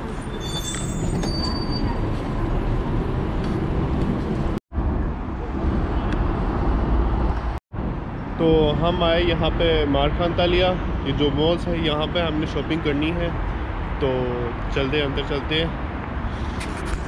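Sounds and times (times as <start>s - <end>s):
tram low rumble: 0.0s - 8.2s.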